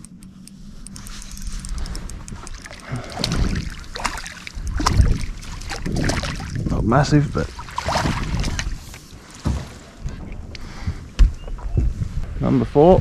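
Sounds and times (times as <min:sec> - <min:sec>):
fish splashing at water surface: 0:01.9 - 0:06.7, 0:07.4 - 0:09.0.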